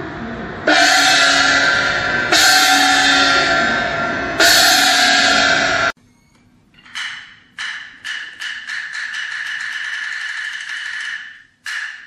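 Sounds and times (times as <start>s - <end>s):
crashing music chords: 0.7s - 6.0s.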